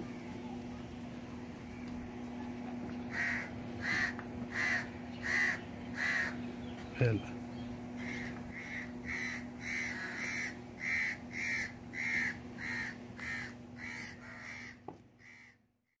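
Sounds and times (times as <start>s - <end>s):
crow cawing: 3.1s - 6.4s, 8.0s - 15.6s.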